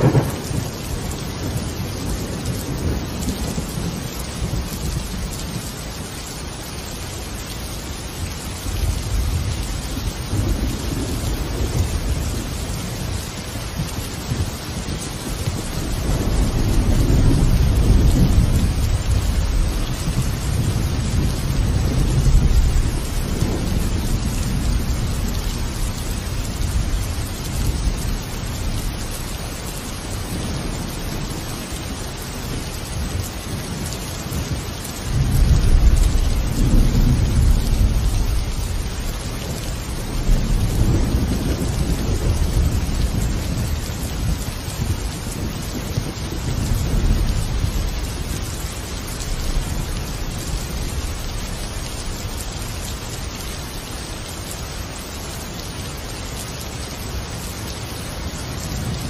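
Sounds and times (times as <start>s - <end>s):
rolls of thunder: 0.0s - 4.6s
steady rain: 0.0s - 59.0s.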